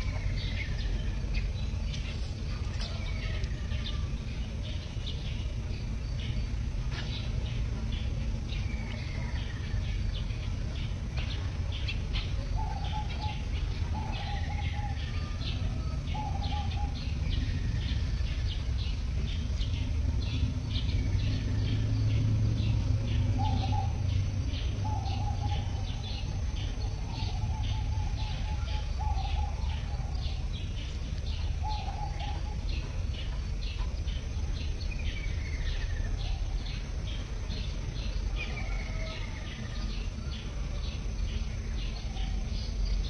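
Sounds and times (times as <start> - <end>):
birds chirping: 0.0 - 43.0
low background rumble: 0.0 - 43.0.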